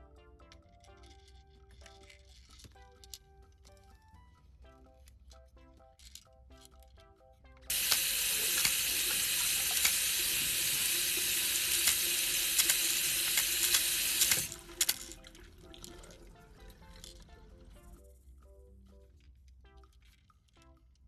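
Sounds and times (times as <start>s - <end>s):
faint background tune: 0.0s - 21.0s
tap water running: 7.7s - 16.6s.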